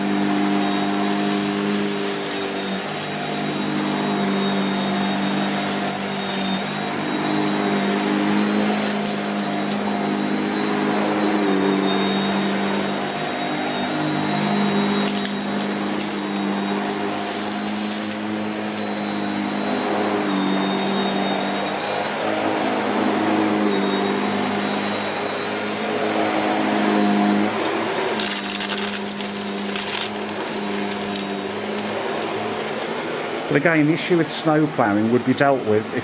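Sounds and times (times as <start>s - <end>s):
rough rustling: 0.0s - 19.0s
vacuum cleaner motor humming: 0.0s - 36.0s.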